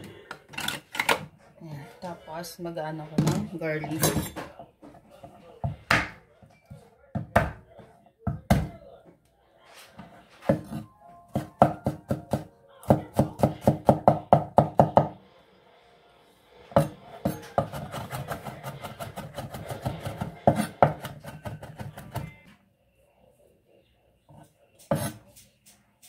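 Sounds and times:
knife chopping on wooden board: 10.5 - 15.1, 16.8 - 22.3.

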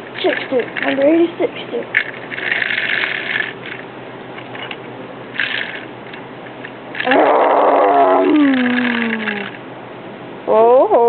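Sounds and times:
person imitating cow moo: 7.1 - 9.5.

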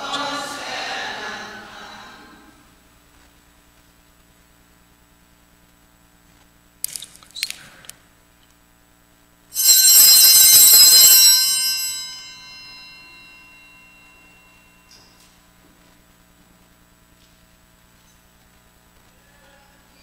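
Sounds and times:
small altar bells ringing: 9.6 - 15.5.

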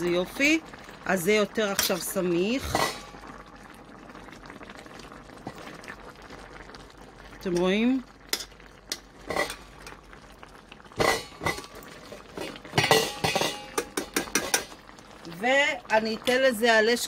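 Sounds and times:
utensils scraping a metal pan: 9.3 - 9.7, 11.0 - 14.7.

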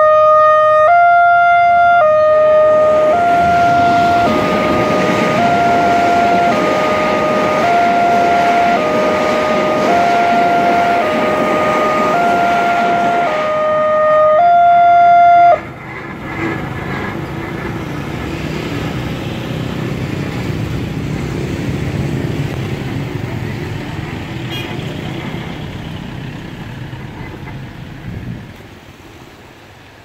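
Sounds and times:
level crossing warning siren: 0.0 - 15.9
motorcycles and car engines: 0.0 - 30.0
road noise: 0.0 - 30.0.

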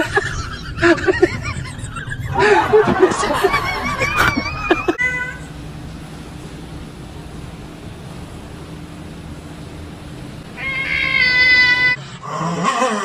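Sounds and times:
people snickering: 0.0 - 5.0.

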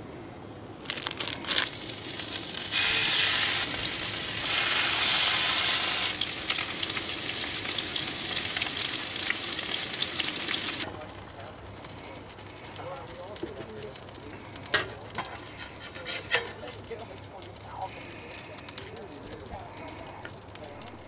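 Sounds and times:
fish sizzling in butter: 0.9 - 21.0
spatula scraping pan: 14.7 - 17.0.

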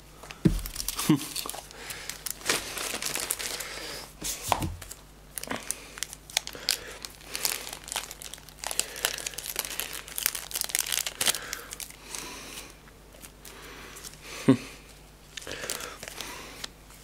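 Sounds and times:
plastic packaging crinkling: 0.4 - 4.0, 4.8 - 12.1, 15.3 - 17.0.

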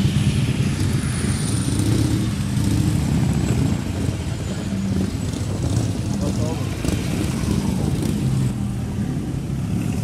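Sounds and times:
motorcycle engines idling: 0.0 - 10.0.

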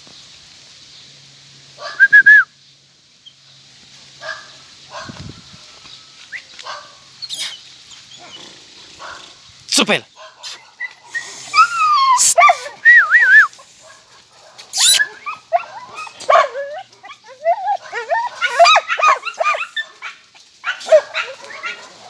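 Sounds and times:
dogs barking and yelping: 4.2 - 5.4, 6.3 - 9.5, 10.2 - 22.0.

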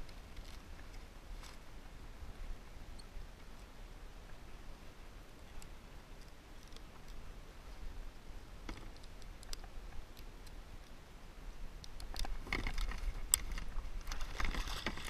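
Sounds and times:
low steady rumble: 0.0 - 15.0
fishing gear clicks and taps: 8.7 - 10.6.

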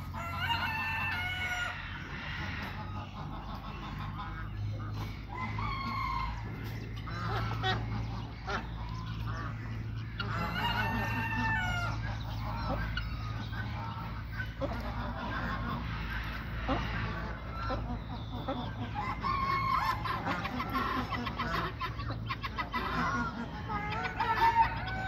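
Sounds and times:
peafowl calling and clucking: 0.0 - 25.0
steady low hum: 0.0 - 25.0.

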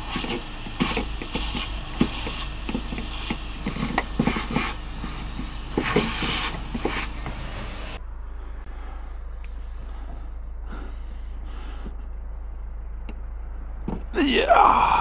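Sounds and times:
vacuum cleaner humming: 0.0 - 8.0.

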